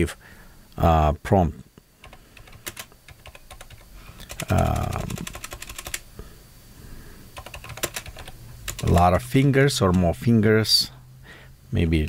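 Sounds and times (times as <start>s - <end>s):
murmured voice: 4.4s - 5.3s.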